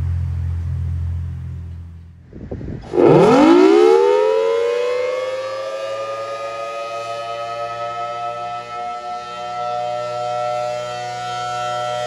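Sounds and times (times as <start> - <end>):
low rumble: 0.0 - 3.8
warning siren sweeping up: 2.8 - 12.0.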